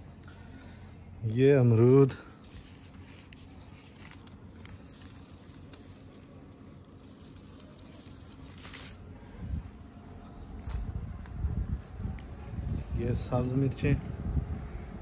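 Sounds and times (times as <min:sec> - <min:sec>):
leaves rustling: 0:01.8 - 0:13.4.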